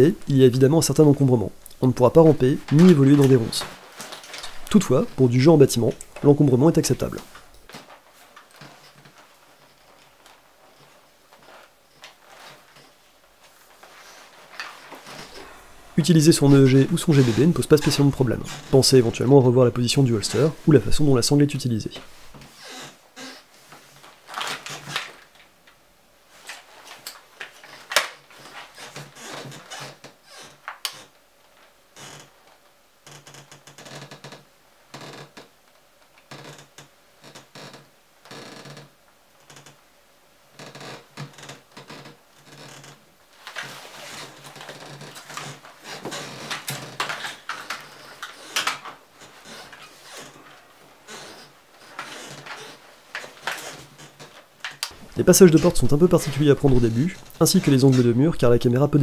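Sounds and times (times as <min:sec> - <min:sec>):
rifle handling clicks and rustling: 0:26.4 - 0:28.3.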